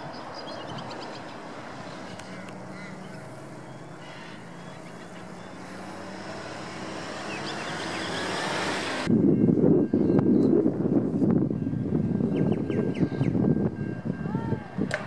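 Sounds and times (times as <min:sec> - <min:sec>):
distant engine hum: 0:00.0 - 0:09.2
outdoor background rumble: 0:00.0 - 0:09.2.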